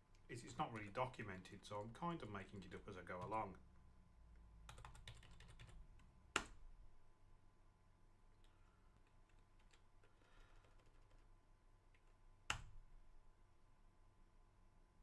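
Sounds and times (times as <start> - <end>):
computer keyboard typing: 3.1 - 3.5, 4.7 - 5.8, 9.0 - 11.3.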